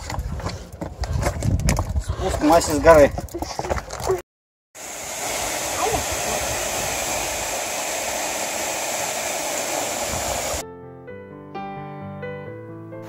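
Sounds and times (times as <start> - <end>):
waterfall rushing: 4.8 - 10.6
music: 10.6 - 13.0.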